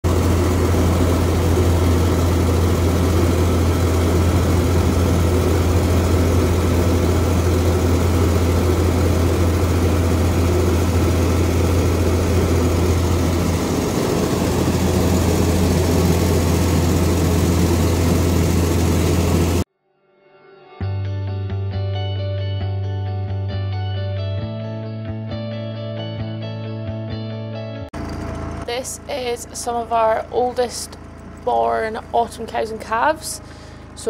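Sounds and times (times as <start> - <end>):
grain mill droning: 0.0 - 19.7, 28.0 - 34.0.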